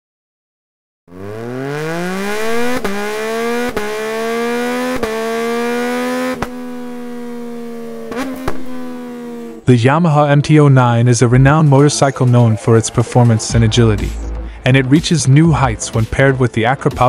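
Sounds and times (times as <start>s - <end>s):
motorcycle engine revving: 1.1s - 9.7s.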